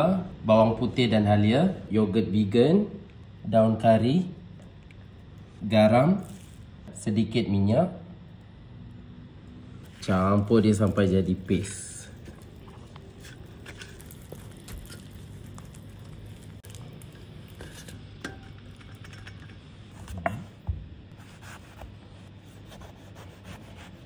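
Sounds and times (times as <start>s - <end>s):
steady low hum: 0.0s - 24.0s
utensil scraping spice paste: 9.9s - 20.2s.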